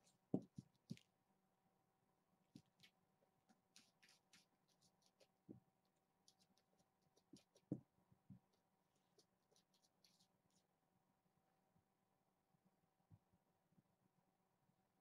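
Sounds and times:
paws scratching on carpet: 2.6 - 7.8, 8.4 - 10.7.

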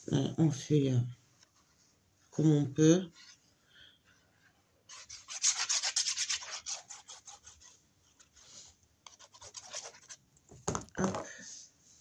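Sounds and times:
paper rubbing and scraping: 4.9 - 10.2.

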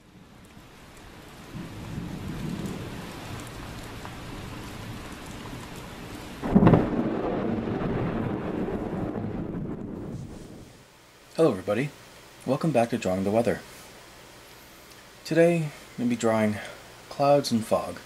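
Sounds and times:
steady rain: 0.0 - 18.0
rolling thunder: 1.4 - 5.7, 6.4 - 10.8
loud thunderclap: 1.5 - 5.0, 6.4 - 10.8.

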